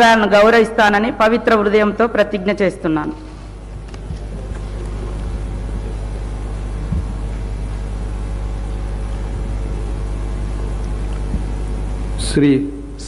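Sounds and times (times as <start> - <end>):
hall room tone rumble: 0.0 - 13.0
soft knock: 6.9 - 7.2.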